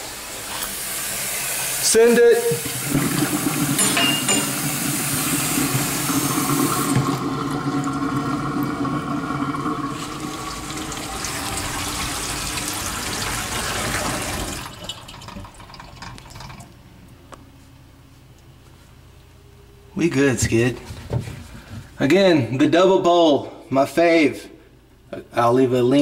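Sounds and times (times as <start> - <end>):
water rushing down a drain: 2.4 - 3.8, 4.4 - 16.7.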